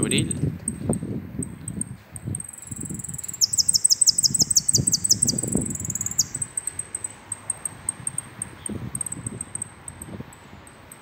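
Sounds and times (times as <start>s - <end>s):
finch singing: 0.0s - 9.7s.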